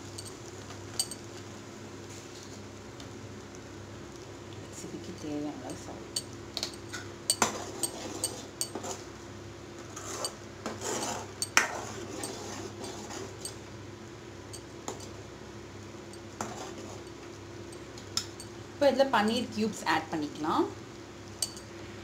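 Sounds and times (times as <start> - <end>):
spoon clinking and scraping pan: 0.1 - 1.3, 6.1 - 9.0, 10.0 - 13.6, 21.4 - 21.7.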